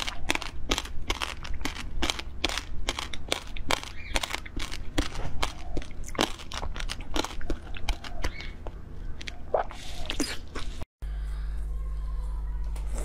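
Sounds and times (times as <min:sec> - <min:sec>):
wet chewing clicks and smacks: 0:00.0 - 0:10.4.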